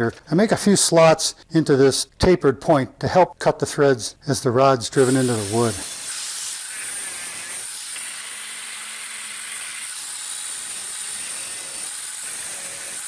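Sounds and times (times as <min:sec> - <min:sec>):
angle grinder cutting steel: 0:04.9 - 0:13.0.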